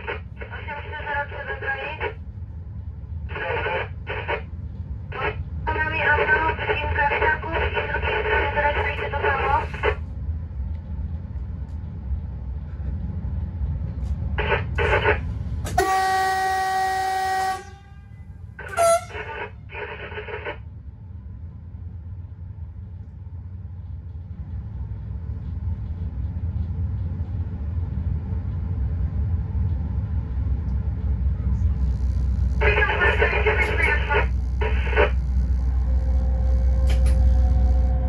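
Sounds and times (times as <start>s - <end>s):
train running rumble: 0.0s - 38.0s
locomotive horn blast: 15.7s - 19.6s
crackly radio bursts: 31.8s - 37.9s.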